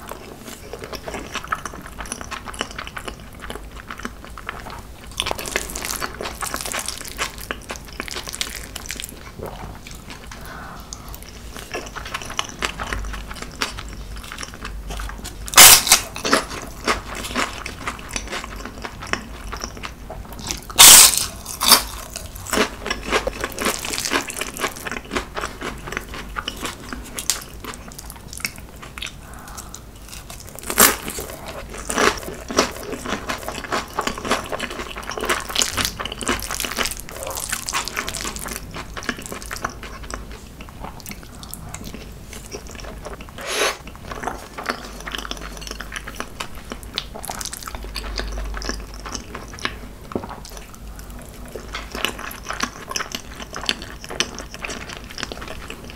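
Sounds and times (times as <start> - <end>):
chewing: 0.0 - 55.9
crisp crunching bites: 20.4 - 25.2.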